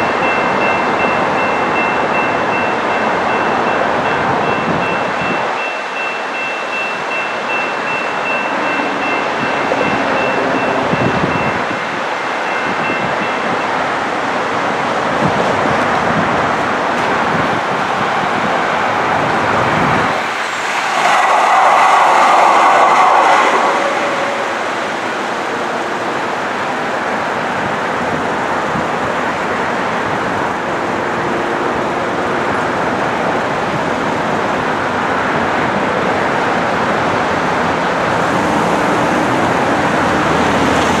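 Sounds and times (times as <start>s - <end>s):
highway traffic noise: 0.0s - 41.0s
passing vehicle rush: 14.8s - 41.0s.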